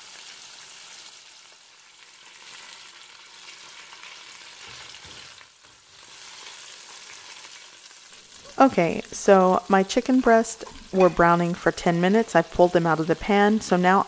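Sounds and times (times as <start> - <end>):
chicken sizzling in oil: 0.0 - 14.0
tongs knocking: 10.2 - 11.6.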